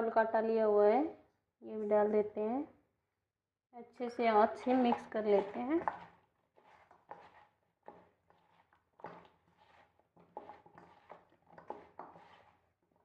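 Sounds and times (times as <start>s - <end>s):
potatoes rustling in flour: 4.7s - 13.0s.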